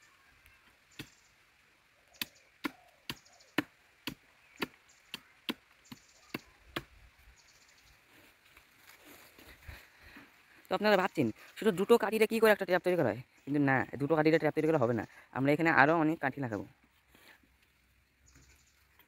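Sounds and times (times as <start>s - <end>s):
blade chopping bamboo: 2.2s - 6.9s
faint rustling: 7.8s - 12.0s.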